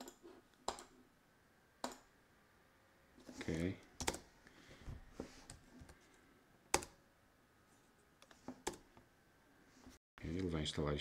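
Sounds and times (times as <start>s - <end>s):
computer keyboard keystrokes: 4.0s - 4.2s.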